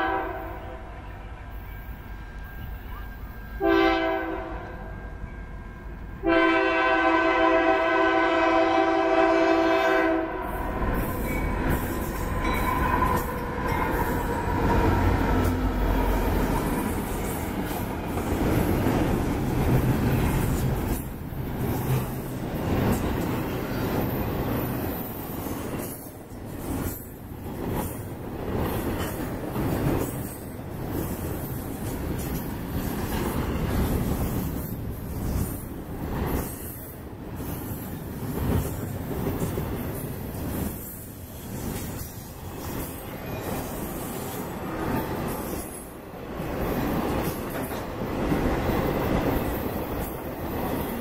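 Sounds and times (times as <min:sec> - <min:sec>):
locomotive air horn blasts: 0:00.0 - 0:00.9, 0:03.6 - 0:04.8, 0:06.2 - 0:10.6
locomotives rumbling past: 0:09.9 - 0:36.6
train wheels clattering on rails: 0:10.6 - 0:51.0.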